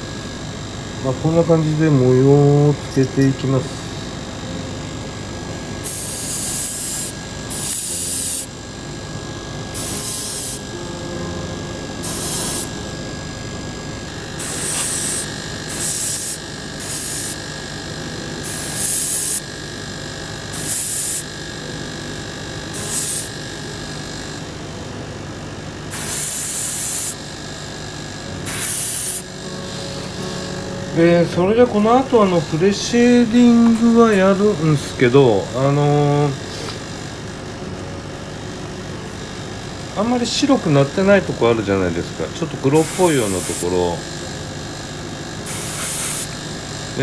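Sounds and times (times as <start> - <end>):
airbrush spraying hiss: 5.8 - 8.5, 9.8 - 10.6, 12.0 - 12.7, 14.4 - 17.4, 18.4 - 19.5, 20.5 - 21.3, 22.7 - 23.3, 25.9 - 27.2, 28.4 - 30.0, 42.8 - 43.7, 45.4 - 46.4.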